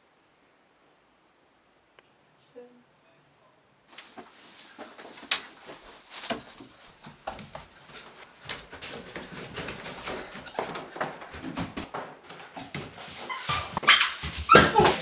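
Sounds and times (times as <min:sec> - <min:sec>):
footsteps on stairs and wooden floor: 0:04.1 - 0:15.0.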